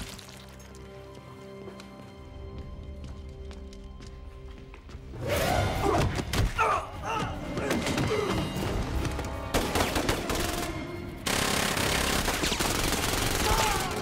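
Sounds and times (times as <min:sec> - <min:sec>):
burst of gunfire: 0:09.5 - 0:14.0.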